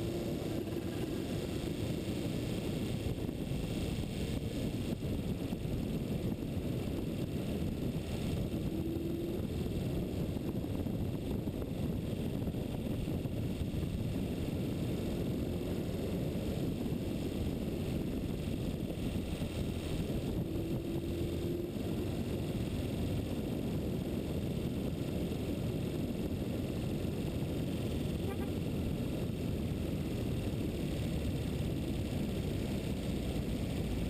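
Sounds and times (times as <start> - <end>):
road rumble: 0.0 - 34.0
wind buffeting microphone: 0.0 - 34.0.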